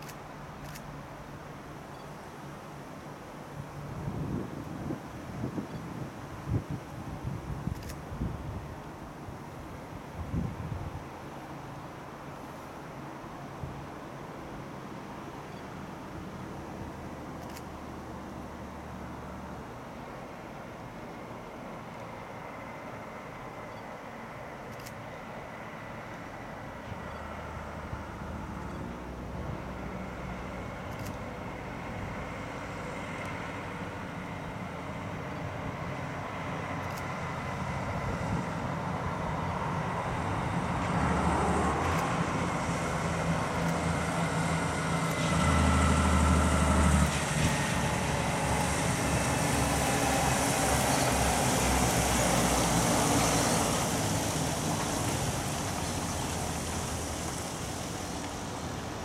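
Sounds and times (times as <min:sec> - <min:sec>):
tyres hissing on wet road: 0:00.0 - 0:59.0
truck diesel engine: 0:25.5 - 0:59.0.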